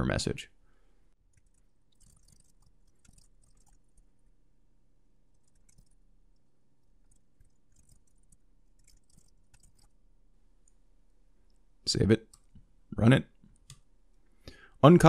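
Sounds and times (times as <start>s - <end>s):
keyboard typing: 1.3s - 4.1s, 5.3s - 10.0s.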